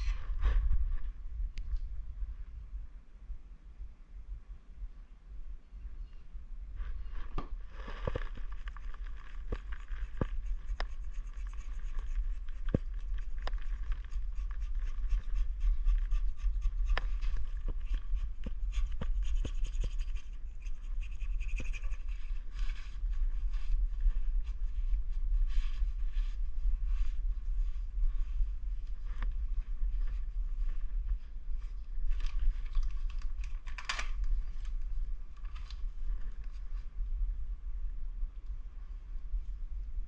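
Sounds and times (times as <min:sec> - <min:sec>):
steady low rumble: 0:00.0 - 0:40.0
scraping and rubbing on metal: 0:07.7 - 0:23.7.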